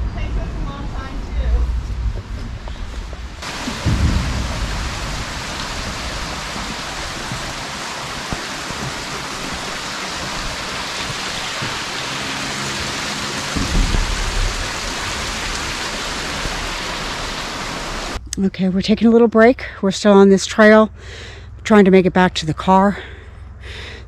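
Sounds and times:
low rumbles: 0.0s - 24.0s
stream rushing over boulders: 3.4s - 18.2s.

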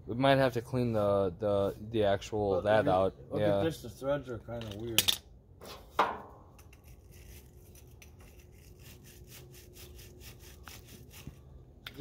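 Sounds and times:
bristle brush scrubbing metal threads: 6.7s - 11.4s.

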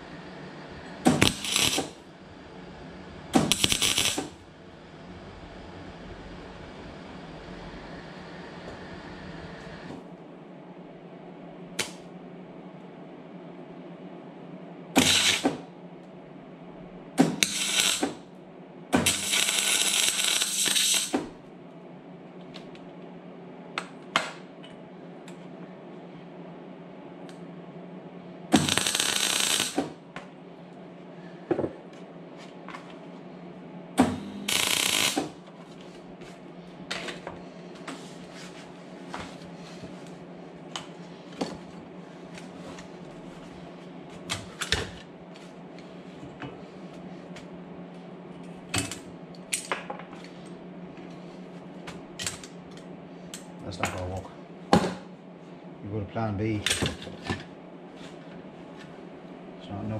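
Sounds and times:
steady low hum: 0.0s - 59.9s
power tool running: 34.1s - 35.3s.

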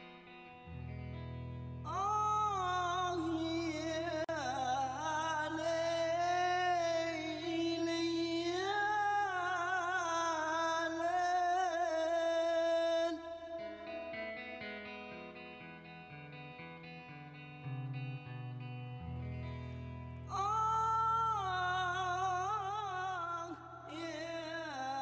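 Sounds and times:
solo voice singing long notes: 1.8s - 14.8s, 20.3s - 25.0s.

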